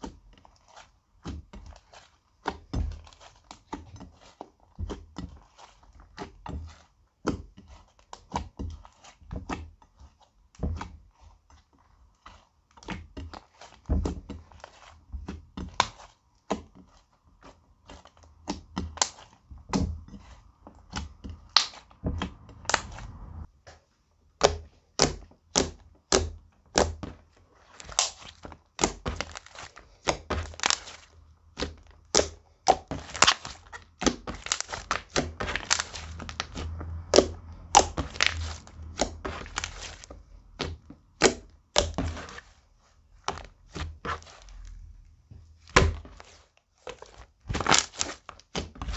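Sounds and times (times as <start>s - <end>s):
slime squished by hand: 17.8s - 23.5s, 24.4s - 42.6s, 45.6s - 48.9s
sticky clicks and pops: 22.5s - 23.2s, 31.6s - 42.1s.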